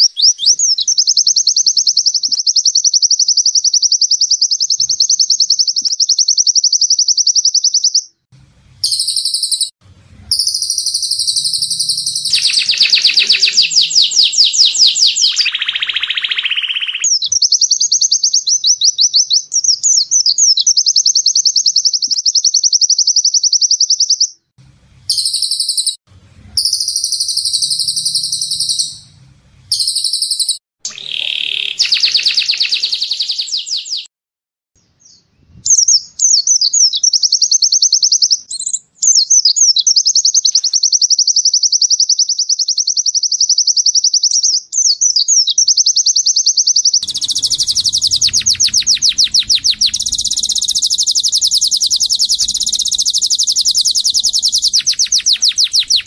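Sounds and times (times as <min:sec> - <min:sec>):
songbird trilling: 0:08.8 - 0:09.7, 0:10.3 - 0:24.3, 0:26.6 - 0:29.1, 0:29.7 - 0:34.1, 0:45.6 - 0:56.0.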